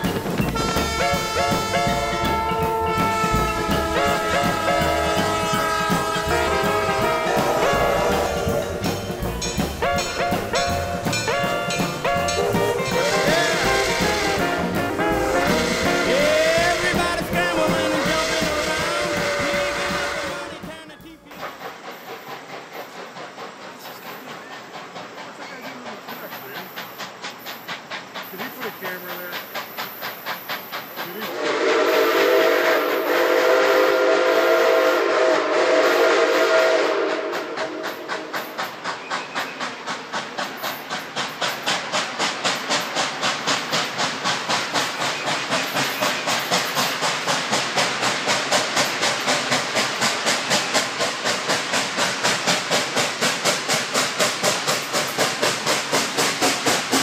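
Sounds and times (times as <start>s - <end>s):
steam chime whistle blast: 0.0s - 20.6s, 31.3s - 38.1s
steam locomotive exhaust chuffs: 0.0s - 57.0s.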